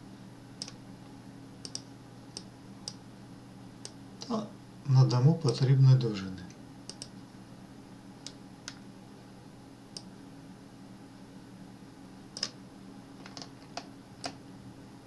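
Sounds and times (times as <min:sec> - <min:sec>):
faint low hum: 0:00.0 - 0:15.0
computer mouse clicks: 0:00.6 - 0:00.8, 0:01.6 - 0:03.0, 0:06.9 - 0:07.2, 0:12.4 - 0:12.6.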